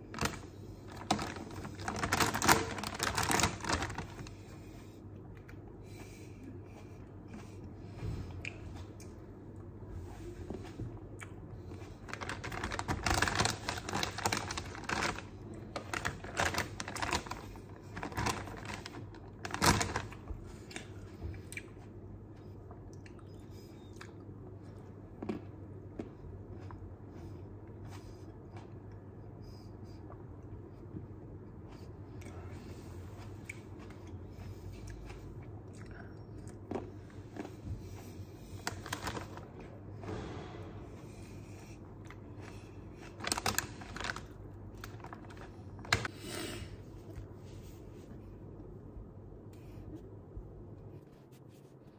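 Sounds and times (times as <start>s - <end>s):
plastic bag crinkling: 0.0s - 4.4s, 12.0s - 20.4s, 38.6s - 39.5s, 42.9s - 46.1s.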